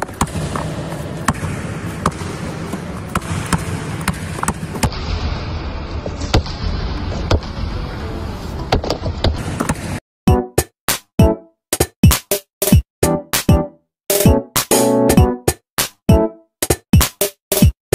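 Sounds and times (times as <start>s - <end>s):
basketball bouncing on hard floor: 0.0s - 4.9s.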